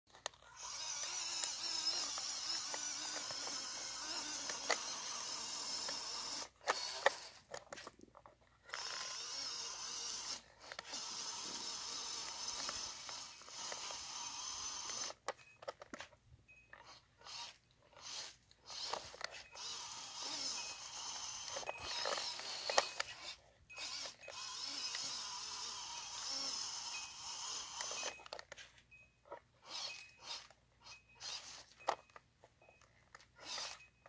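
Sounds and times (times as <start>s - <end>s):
toy truck electric motor whirring: 0.1s - 34.0s.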